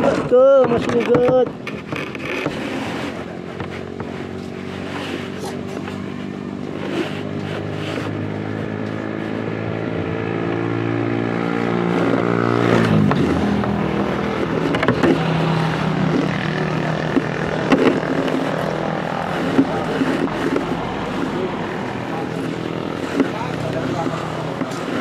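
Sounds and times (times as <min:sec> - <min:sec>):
knocks and rattles: 0:00.0 - 0:04.5, 0:11.9 - 0:25.0
motorcycle engine running: 0:01.5 - 0:25.0.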